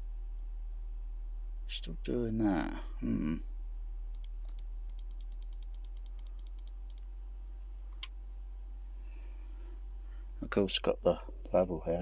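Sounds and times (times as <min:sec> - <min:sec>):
low sine test tone: 0:00.0 - 0:07.2.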